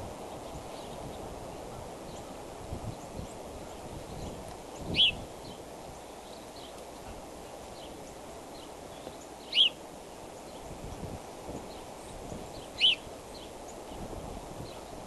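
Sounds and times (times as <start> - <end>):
steady low hiss: 0.0 - 15.0
eagle high chirps: 9.5 - 9.8, 12.8 - 13.0.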